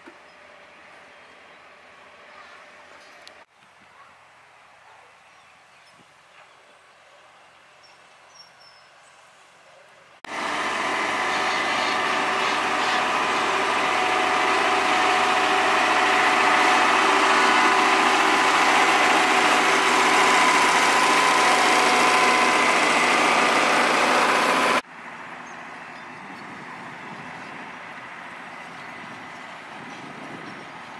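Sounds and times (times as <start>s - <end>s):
steady high whine: 10.3s - 24.8s
diesel engine running: 10.3s - 30.4s.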